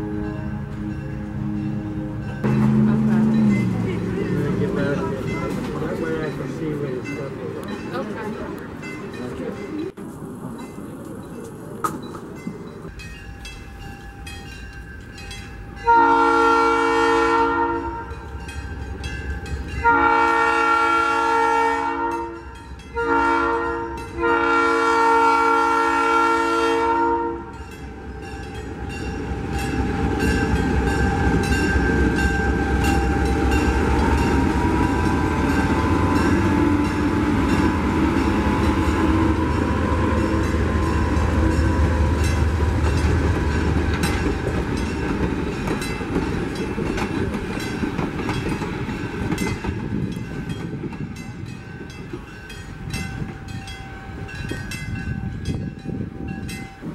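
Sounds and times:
train wheels on rails: 0.0 - 21.4, 27.4 - 56.9
diesel locomotive engine: 0.0 - 56.9
locomotive air horn: 15.8 - 18.3, 19.8 - 28.2, 29.7 - 42.8.

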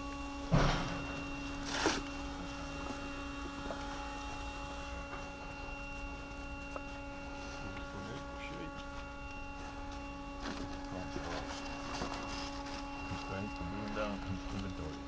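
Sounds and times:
warehouse hum: 0.0 - 15.0
dry leaves crackling: 9.8 - 14.9.

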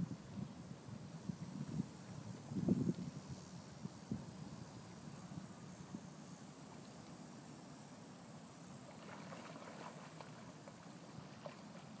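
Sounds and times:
steady high hiss: 0.0 - 12.0
water splashing and lapping: 8.8 - 12.0.

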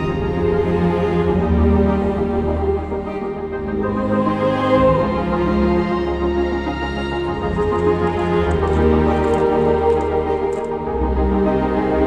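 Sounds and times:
slow ambient music with chords: 0.0 - 12.0.

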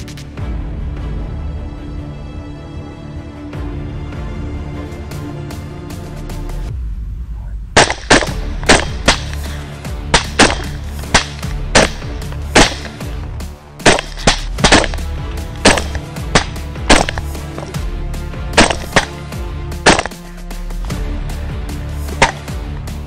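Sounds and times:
background music: 0.0 - 23.0
rifle shots: 7.8 - 13.1, 13.8 - 17.8, 18.6 - 19.2, 19.8 - 20.2, 22.2 - 22.5.

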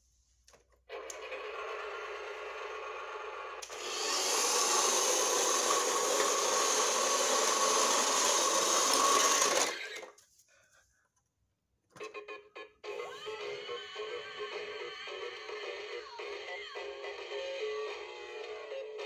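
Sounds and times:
toy truck wheels whirring: 0.9 - 10.2.

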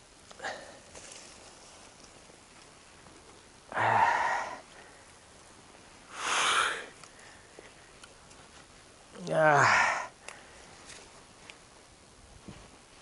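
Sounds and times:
person breathing out hard: 3.7 - 5.0, 6.1 - 7.5.

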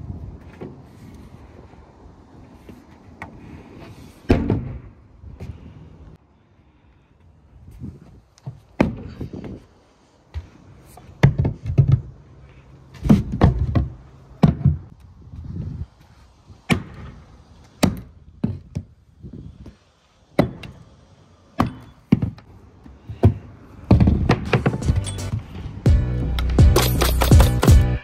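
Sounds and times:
music: 24.6 - 28.0.

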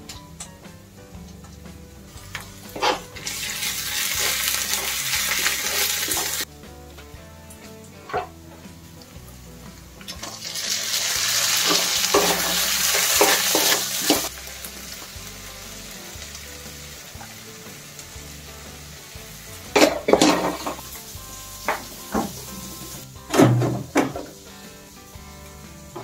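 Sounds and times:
tomatoes sizzling in hot oil: 0.7 - 26.0
stirring strokes in a wok: 0.8 - 23.3
utensils knocking: 11.6 - 14.3.

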